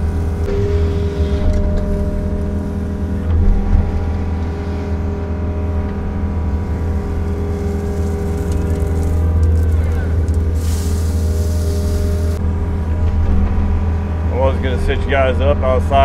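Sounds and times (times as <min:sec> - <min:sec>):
excavator diesel engine running: 0:00.0 - 0:16.0
hydraulics working: 0:00.0 - 0:16.0
bucket digging into gravel: 0:07.3 - 0:12.4.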